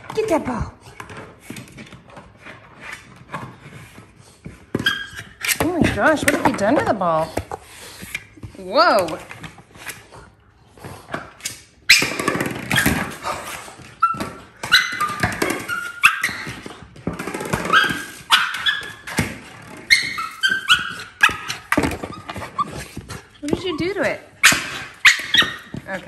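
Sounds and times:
ball and paws knocking and scuffing: 0:00.0 - 0:26.0
puppy yipping and barking: 0:14.0 - 0:16.5, 0:17.7 - 0:19.0, 0:19.9 - 0:21.6, 0:24.4 - 0:25.8.

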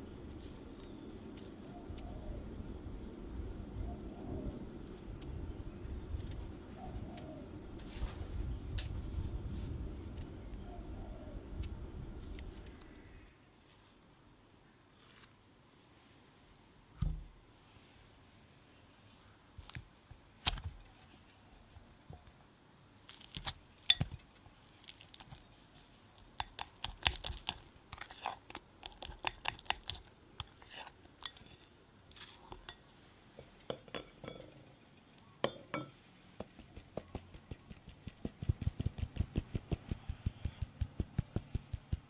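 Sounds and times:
fork clinking against glass bowl: 0:33.7 - 0:34.6.

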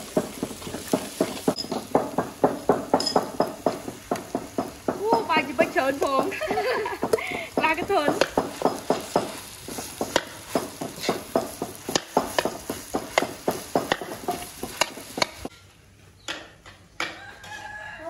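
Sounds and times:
rice sizzling: 0:00.0 - 0:15.6
spatula scraping metal wok: 0:05.2 - 0:15.6.

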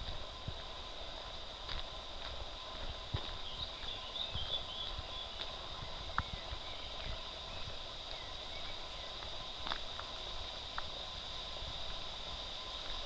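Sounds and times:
footsteps on asphalt: 0:00.0 - 0:13.0
high-pitched background hum: 0:00.0 - 0:13.0.

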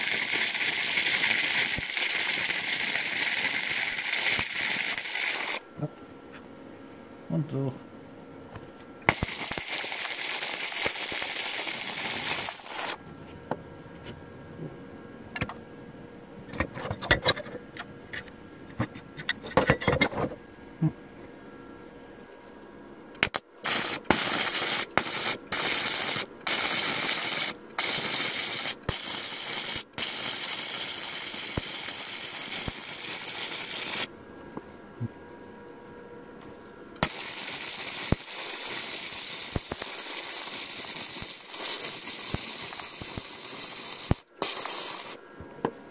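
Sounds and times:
welder arc crackling and hissing: 0:00.0 - 0:05.9, 0:09.0 - 0:13.0, 0:23.2 - 0:34.1, 0:37.0 - 0:45.2.

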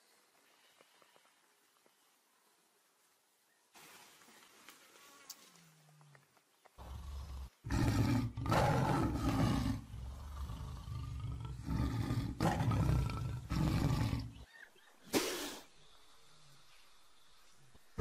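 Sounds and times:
tiger growling and roaring: 0:06.8 - 0:14.5.

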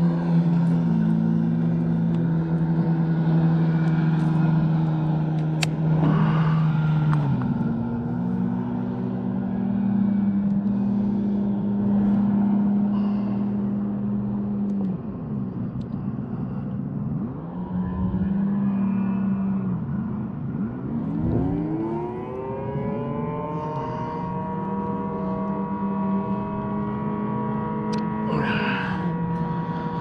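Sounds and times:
tornado warning siren wailing: 0:21.1 - 0:30.0.

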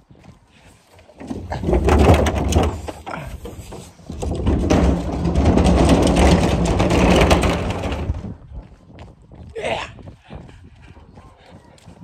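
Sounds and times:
trash can wheels rumbling on concrete: 0:01.0 - 0:09.5.

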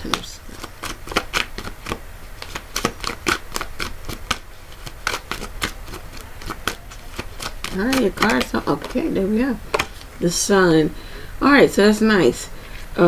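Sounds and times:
cards being shuffled: 0:00.0 - 0:10.1.

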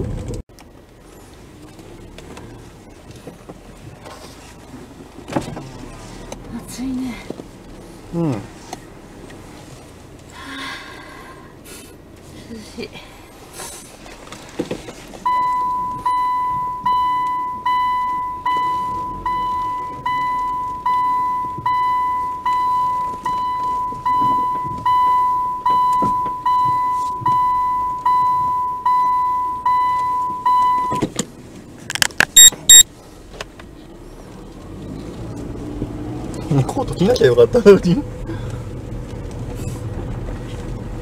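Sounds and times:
car warning chime dinging: 0:15.2 - 0:31.0, 0:31.9 - 0:32.8.

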